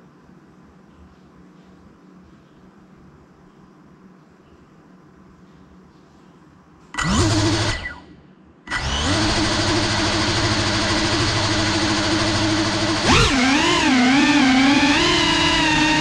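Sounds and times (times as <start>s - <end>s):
drone motors buzzing: 7.0s - 8.0s, 8.7s - 16.0s.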